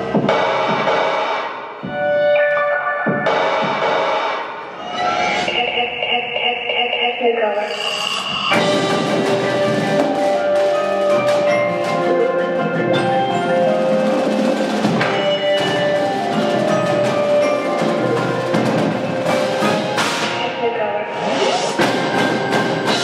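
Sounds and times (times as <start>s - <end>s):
rapid drum strokes: 8.4s - 20.5s, 21.5s - 23.0s
marimbas playing chords and runs: 8.5s - 20.4s.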